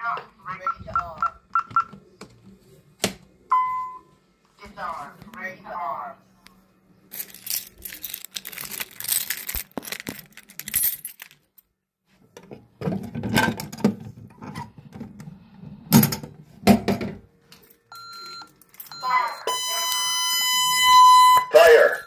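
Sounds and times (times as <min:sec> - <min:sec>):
rustling handling noise: 0:07.0 - 0:12.3
plastic cover rattling and clacking: 0:07.1 - 0:11.4.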